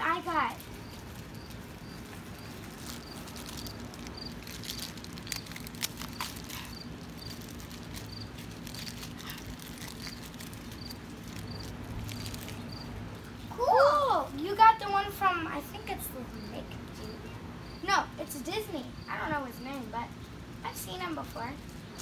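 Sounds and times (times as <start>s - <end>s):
faint outdoor background noise: 0.0s - 22.0s
insect chirping: 0.1s - 12.9s, 16.3s - 18.2s, 18.8s - 19.8s.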